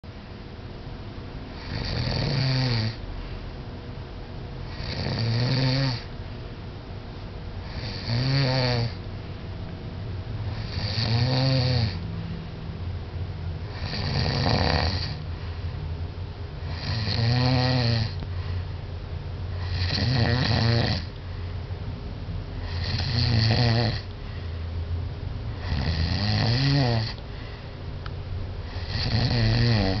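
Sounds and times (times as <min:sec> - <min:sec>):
man snoring heavily: 0:01.6 - 0:03.0, 0:04.7 - 0:06.1, 0:07.6 - 0:09.0, 0:10.5 - 0:12.0, 0:13.7 - 0:15.2, 0:16.6 - 0:18.2, 0:19.6 - 0:21.1, 0:22.6 - 0:24.1, 0:25.5 - 0:27.2, 0:28.6 - 0:30.0
quiet breathing: 0:03.0 - 0:03.6, 0:15.1 - 0:16.0, 0:18.1 - 0:19.9, 0:21.0 - 0:21.7, 0:24.0 - 0:25.8, 0:27.1 - 0:28.0.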